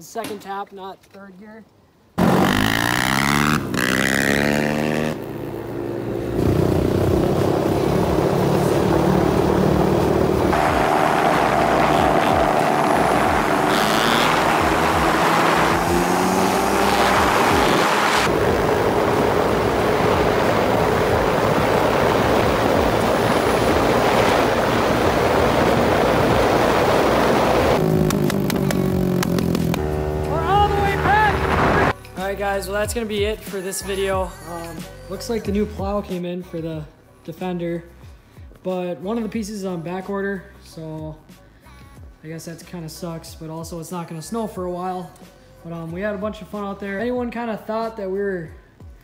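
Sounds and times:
pit bike engine high revs: 2.2s - 31.9s
quad engine revving: 2.2s - 32.0s.

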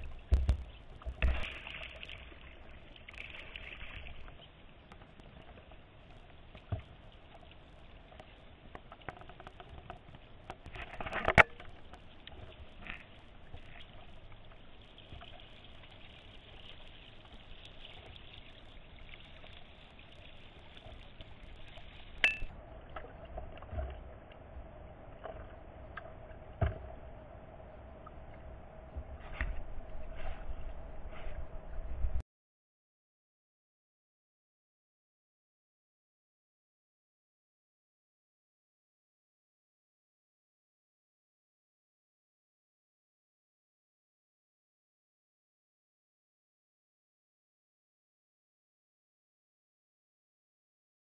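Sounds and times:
water trickling and lapping: 0.0s - 31.9s.

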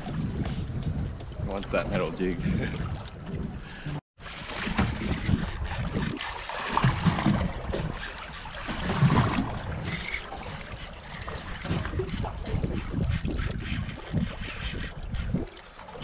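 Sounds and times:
wind gusts on microphone: 0.0s - 4.0s, 11.4s - 15.5s
water lapping against boat hull: 0.0s - 16.0s.

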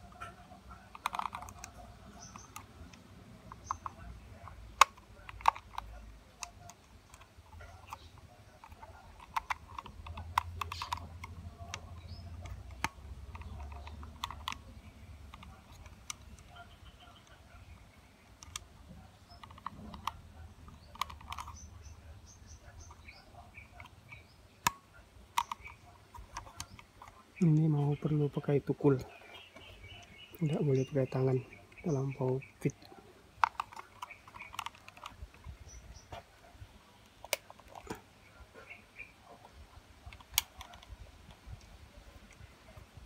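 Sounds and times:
plastic clicks and taps: 0.1s - 17.4s, 18.3s - 21.7s, 23.8s - 28.1s, 33.4s - 36.3s.

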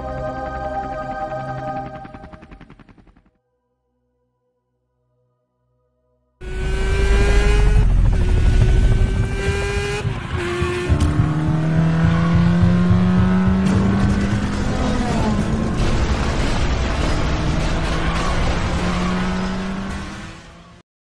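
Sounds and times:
car engine accelerating hard: 6.4s - 20.8s.

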